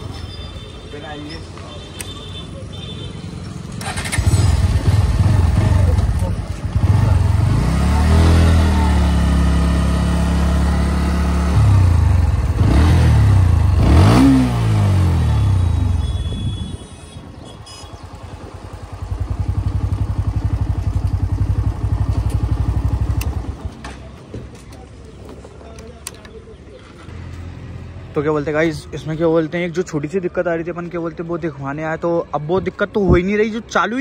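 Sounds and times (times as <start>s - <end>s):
motorcycle engine revving and idling: 3.4s - 24.1s.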